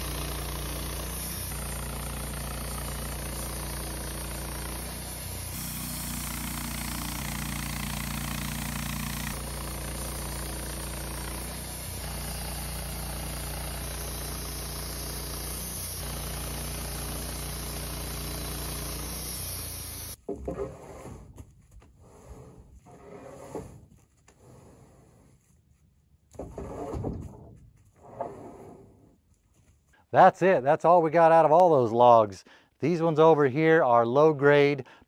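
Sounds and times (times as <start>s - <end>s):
sawmill engine running: 0.0s - 20.2s.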